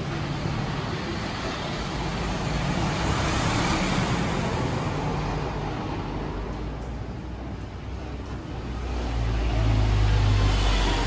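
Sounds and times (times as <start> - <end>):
bus diesel engine: 0.0 - 11.0
road noise: 0.0 - 11.0.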